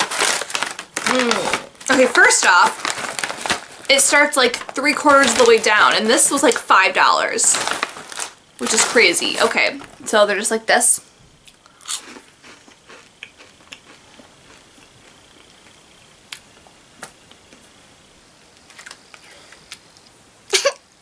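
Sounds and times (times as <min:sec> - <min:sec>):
person chewing: 0:11.4 - 0:17.6.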